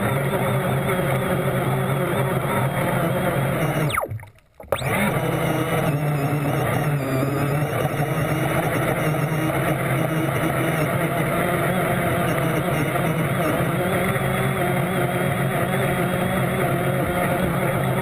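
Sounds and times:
muffled boat motor hum: 0.0 - 18.0
water noise: 1.0 - 6.8.

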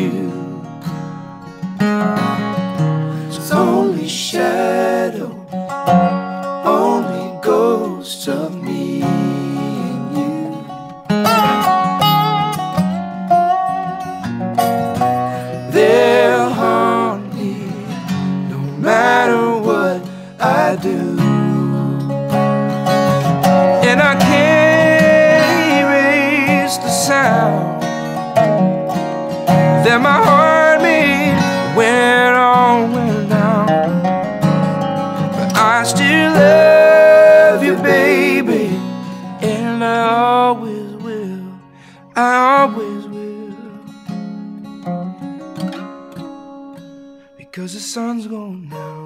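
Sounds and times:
wordless group harmony singing: 0.0 - 0.9, 3.2 - 5.6, 6.4 - 10.8, 15.3 - 22.2, 23.1 - 28.2, 29.5 - 33.5, 35.4 - 40.8
acoustic guitar: 0.0 - 49.0
resonator guitar: 0.0 - 49.0.

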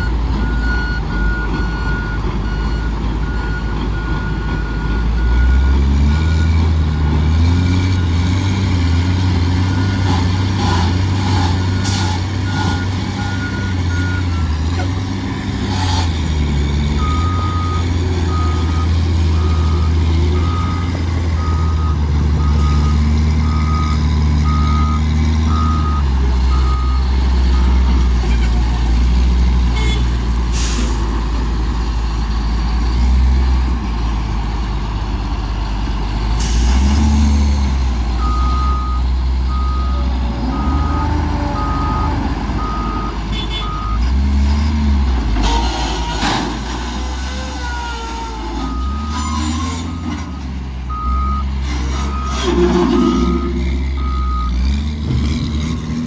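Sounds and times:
diesel engine revving: 0.0 - 56.0
reversing alarm beeping: 17.0 - 28.2, 38.2 - 44.0, 48.6 - 51.5, 52.1 - 54.6
short hisses: 30.5 - 31.0.

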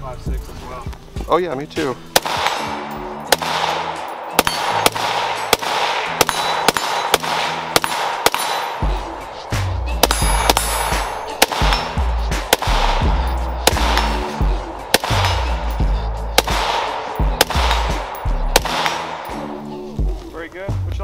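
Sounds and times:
music with heavy bass beat: 1.8 - 21.0
rifle gunshots: 2.1 - 9.1, 10.0 - 19.4.

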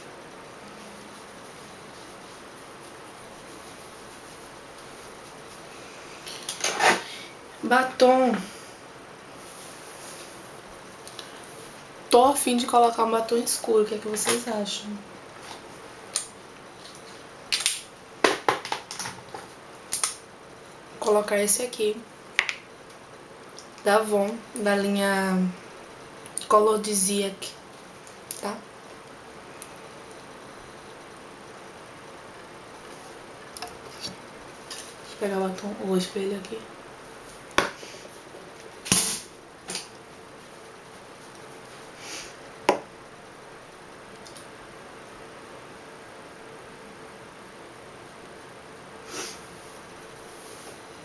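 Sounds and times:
breathy hiss: 37.7 - 38.2, 41.9 - 42.5, 49.0 - 50.8.

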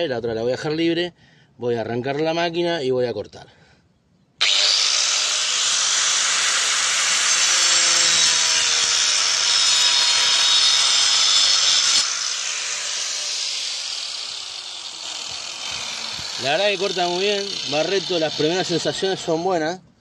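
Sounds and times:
angle grinder cutting wood: 4.4 - 19.6.

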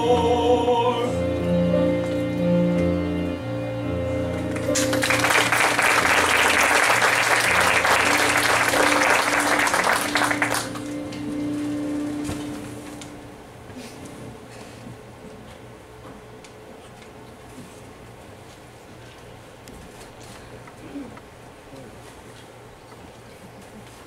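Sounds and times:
held final musical chord: 0.0 - 13.5
audience applauding: 4.5 - 11.2.

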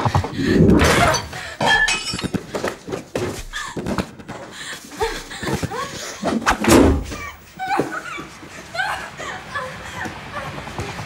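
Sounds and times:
glass breaking and clinking: 1.6 - 2.4
heavy thunk: 6.4 - 7.4.

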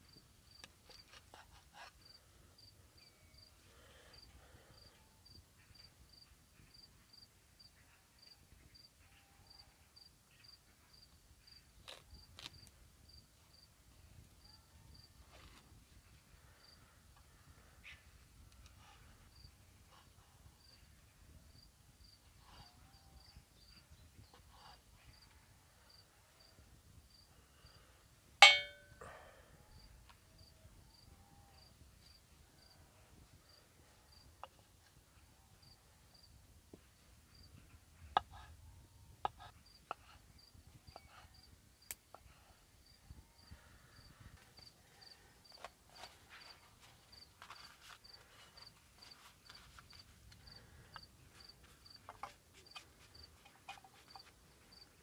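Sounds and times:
loud metallic clang: 28.4 - 29.0
crickets chirping: 42.8 - 55.0.

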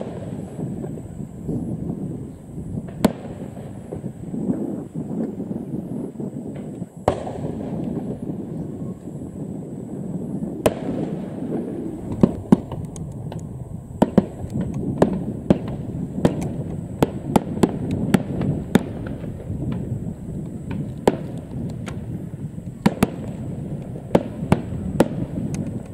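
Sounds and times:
continuous low rumble: 0.0 - 25.9
firework shells bursting: 0.0 - 25.9.

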